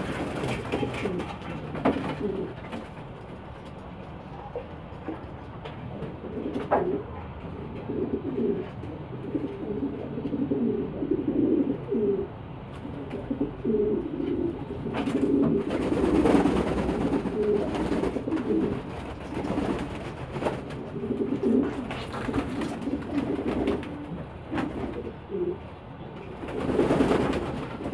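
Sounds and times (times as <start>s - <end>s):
wings flapping: 0.0s - 3.2s, 14.9s - 25.1s, 26.3s - 27.9s
pigeons cooing: 0.0s - 3.3s, 6.0s - 27.9s.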